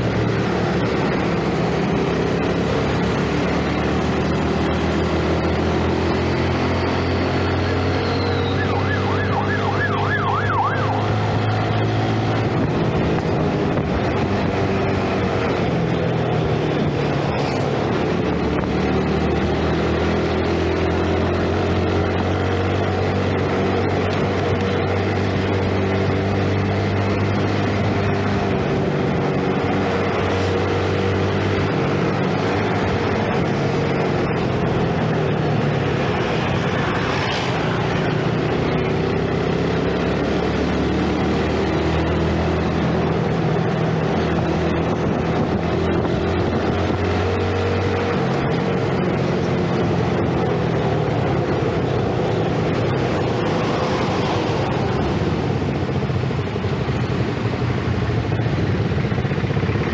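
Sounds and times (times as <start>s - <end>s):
motorcycle engine running: 0.0s - 59.9s
warbling siren-like tone: 7.7s - 11.5s.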